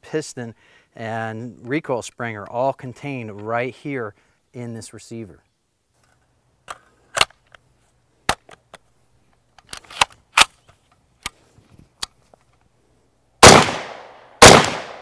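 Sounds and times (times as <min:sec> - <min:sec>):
metallic clicks of rifle magazine: 0:06.0 - 0:07.6, 0:08.3 - 0:11.4, 0:12.0 - 0:12.7
rifle shot: 0:13.4 - 0:15.0.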